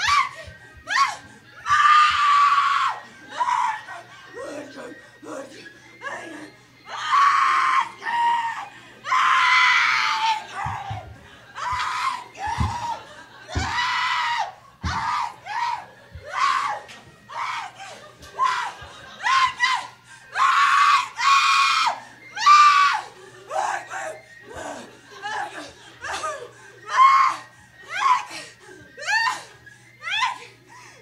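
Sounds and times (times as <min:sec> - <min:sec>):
woman screaming: 0:00.0 - 0:04.8, 0:05.4 - 0:11.0, 0:11.6 - 0:30.5
dull thumps: 0:10.6 - 0:13.8, 0:14.8 - 0:15.2.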